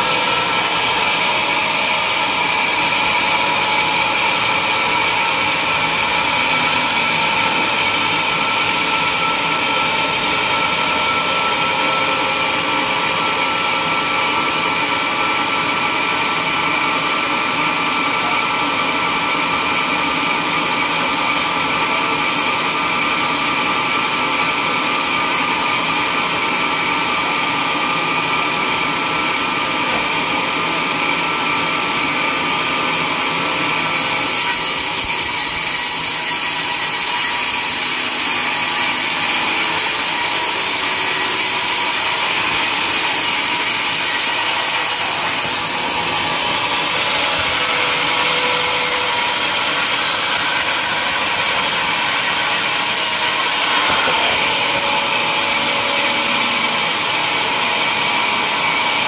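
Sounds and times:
band saw whining: 0.0 - 59.0.

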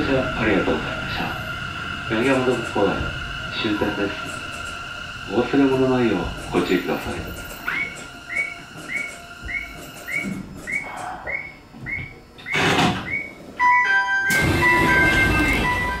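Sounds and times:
rush of noise: 0.0 - 9.6
short rising electronic beeps: 7.4 - 16.0
electronic chime melody: 13.6 - 16.0.

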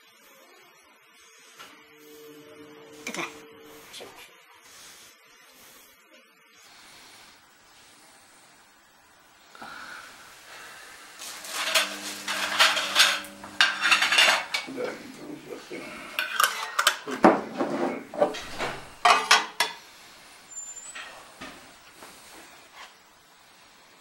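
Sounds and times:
glass jars clinking: 11.5 - 14.7, 16.2 - 17.2, 18.2 - 19.8.

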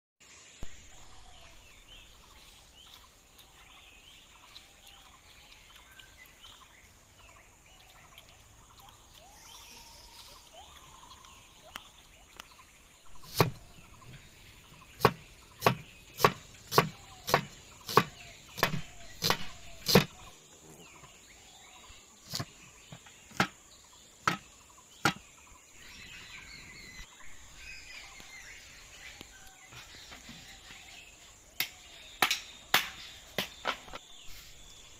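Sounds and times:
birds chirping faintly: 0.2 - 34.9
knife chopping on wooden board: 13.1 - 14.3, 14.9 - 20.3, 22.3 - 23.6, 24.2 - 25.2.

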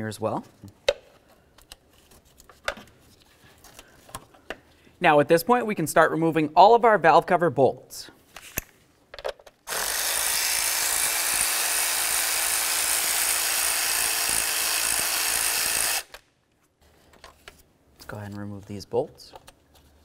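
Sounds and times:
electric ratchet running: 9.7 - 16.2.

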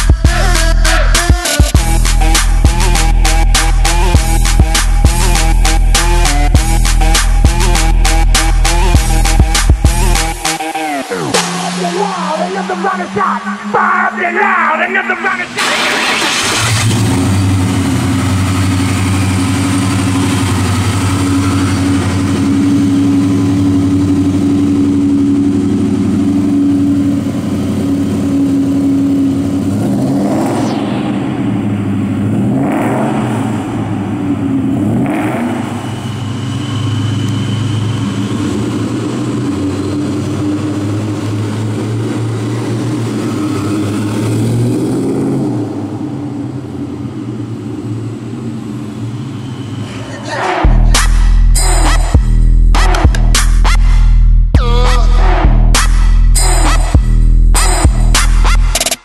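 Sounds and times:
car engine idling: 0.0 - 58.9
car engine revving: 0.0 - 59.0.

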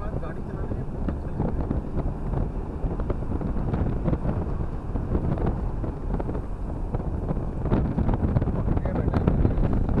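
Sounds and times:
tyre and engine rumble: 0.0 - 10.0.

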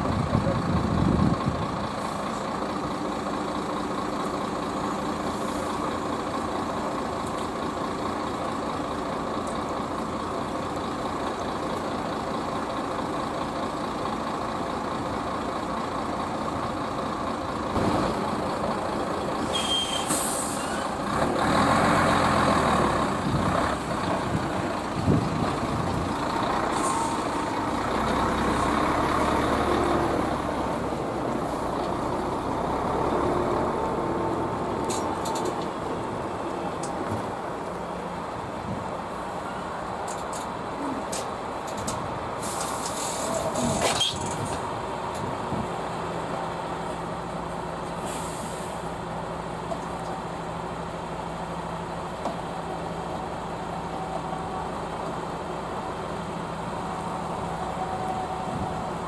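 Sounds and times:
diesel trucks idling: 0.0 - 59.0
truck pulling away: 0.0 - 59.0
air brake hiss: 19.4 - 20.9, 42.4 - 44.1, 48.0 - 48.9.

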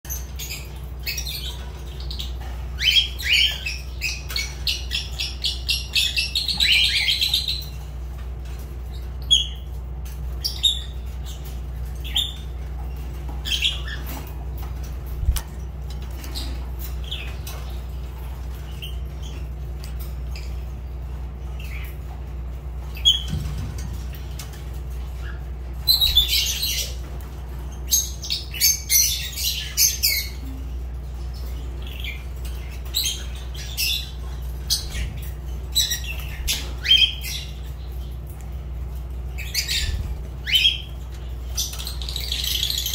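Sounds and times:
lovebirds chirping and squawking: 0.1 - 42.9
steady low hum: 0.1 - 42.9.

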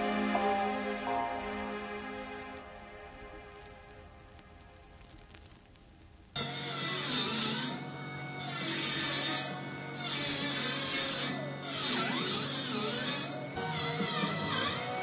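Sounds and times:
background music: 0.0 - 5.0, 6.4 - 15.0
rasping strokes on steel: 6.4 - 15.0.

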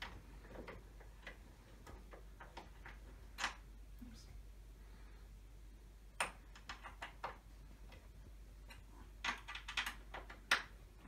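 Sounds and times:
hardware clicking on wooden frame: 6.2 - 11.0.

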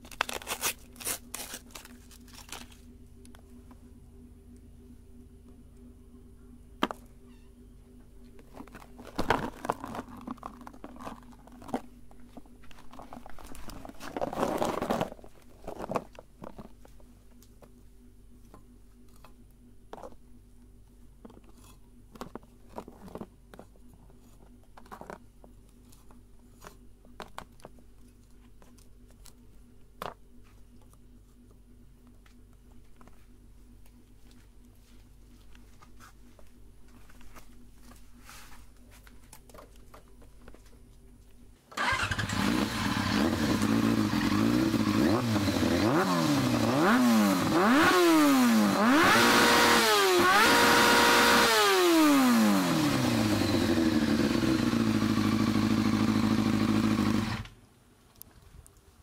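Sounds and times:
wafer crunching: 0.0 - 2.8, 8.4 - 16.9
wrapper crinkling: 0.0 - 2.9, 8.4 - 16.9.

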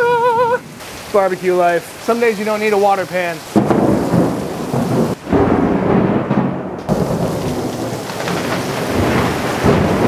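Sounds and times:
heavy rain pouring: 0.0 - 10.0
thunder rumbling: 3.5 - 10.0.

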